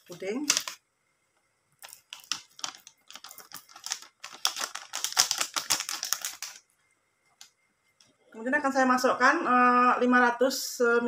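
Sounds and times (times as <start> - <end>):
plastic sachet crinkling: 0.0 - 0.8, 1.8 - 6.6
powder pattering into blender jar: 0.0 - 0.8, 1.8 - 6.6.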